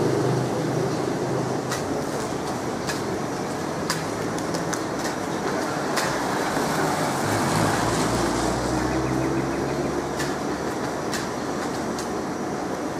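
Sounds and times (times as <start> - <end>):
street traffic noise: 0.0 - 12.9
vehicle engine passing: 6.2 - 10.7.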